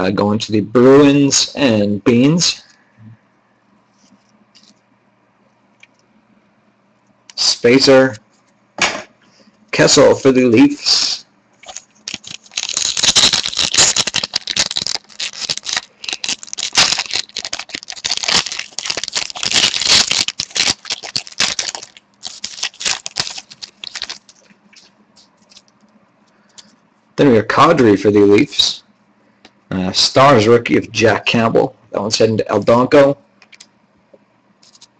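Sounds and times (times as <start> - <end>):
wrapper crinkling: 11.6 - 25.9.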